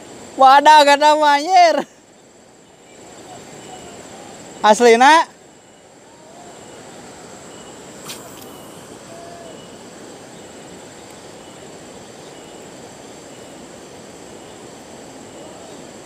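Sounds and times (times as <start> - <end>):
high insect whine: 0.0 - 16.0
rain falling on a river: 0.0 - 16.0.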